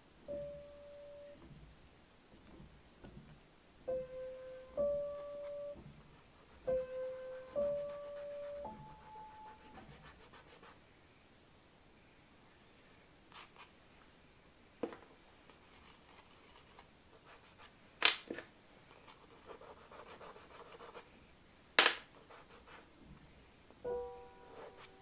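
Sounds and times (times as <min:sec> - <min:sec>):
pastel scratching on paper: 0:05.0 - 0:10.8, 0:15.6 - 0:17.7, 0:19.0 - 0:21.1, 0:22.2 - 0:22.9, 0:24.4 - 0:25.0.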